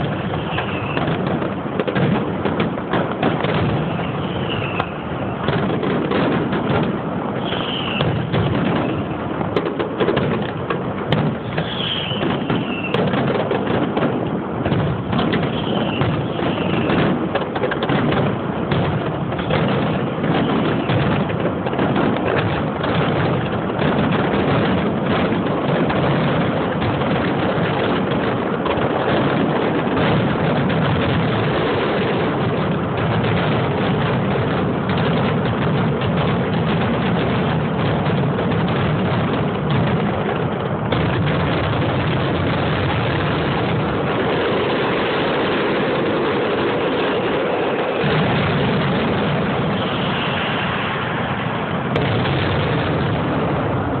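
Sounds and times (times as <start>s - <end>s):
falling firework whistles: 0.0s - 2.1s, 3.2s - 9.6s, 11.1s - 14.1s, 14.7s - 24.3s, 41.0s - 54.0s
fireworks bursting and crackling: 0.0s - 54.0s.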